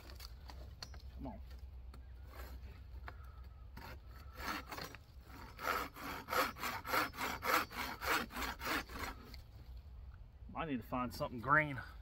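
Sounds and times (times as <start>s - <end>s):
machete sawing through stick: 2.2s - 3.0s, 3.6s - 9.6s.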